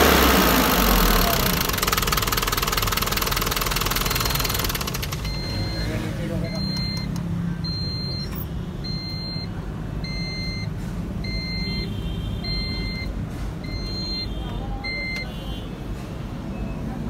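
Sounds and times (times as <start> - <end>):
diesel engine idling: 0.0 - 11.8
short electronic beeps: 3.9 - 15.5.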